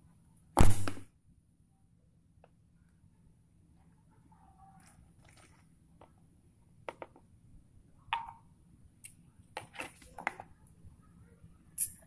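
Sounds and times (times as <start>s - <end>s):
plastic bottle crinkling: 4.8s - 5.7s.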